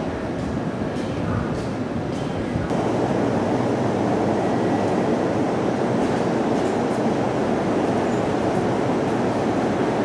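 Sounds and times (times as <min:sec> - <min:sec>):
electric train equipment noise: 0:02.7 - 0:10.0.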